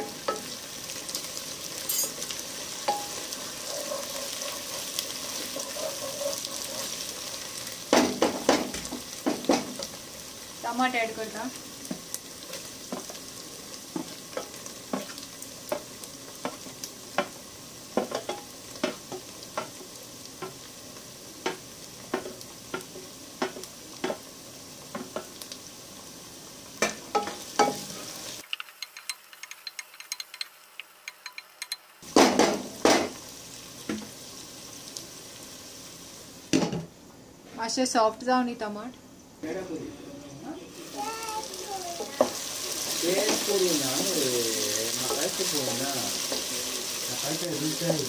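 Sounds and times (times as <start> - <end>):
onions sizzling in hot oil: 0.0 - 48.0
wooden spoon knocking pan: 7.9 - 9.8.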